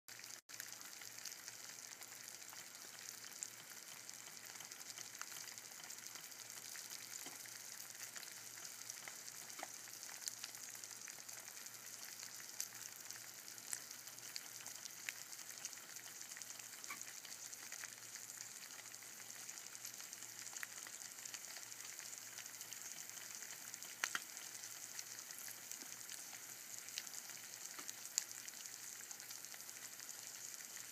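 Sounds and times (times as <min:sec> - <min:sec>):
eggs sizzling in a pan: 0:00.1 - 0:30.9
popping fat: 0:19.7 - 0:30.6.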